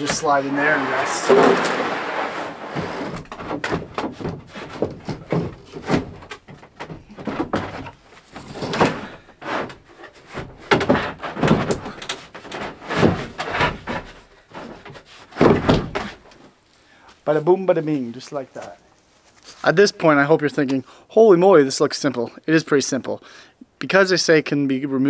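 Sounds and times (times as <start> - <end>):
wood scraping on wood: 0.0 - 16.4.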